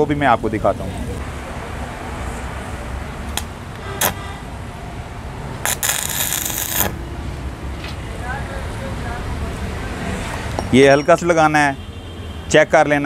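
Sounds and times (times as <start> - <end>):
welding arc crackling: 3.4 - 4.2, 5.6 - 7.0
electrode scratching metal: 5.6 - 7.0.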